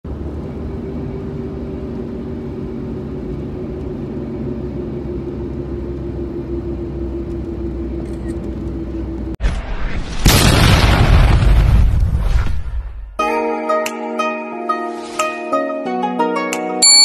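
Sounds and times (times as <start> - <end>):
engine and road rumble: 0.0 - 12.8
constant low hum: 0.1 - 9.4.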